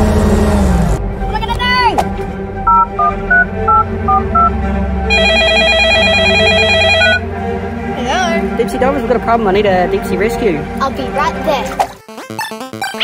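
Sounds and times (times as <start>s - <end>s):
warbling phone ring: 5.1s - 7.2s.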